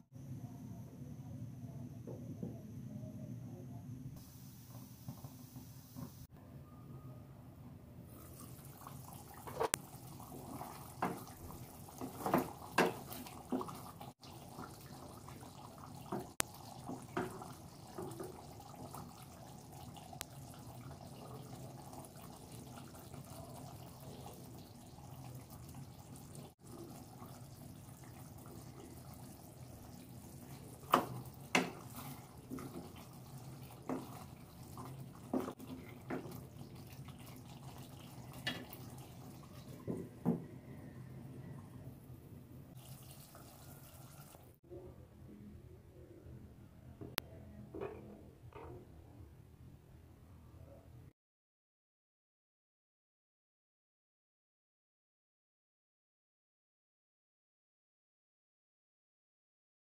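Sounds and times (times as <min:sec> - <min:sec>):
thick gravy bubbling in wok: 0:08.2 - 0:41.8, 0:42.7 - 0:44.6.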